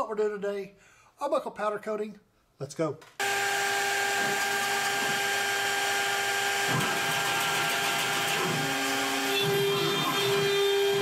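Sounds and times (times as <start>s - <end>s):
router spindle whine: 3.2s - 11.0s.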